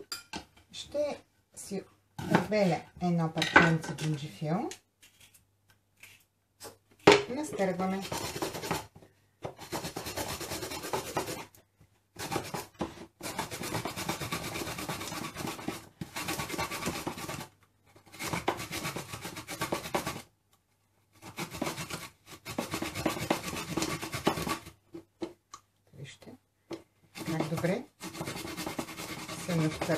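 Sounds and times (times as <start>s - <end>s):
ginger rasping on a grater: 7.6s - 8.9s, 9.6s - 11.5s, 12.2s - 20.3s, 21.2s - 24.7s, 27.2s - 29.9s.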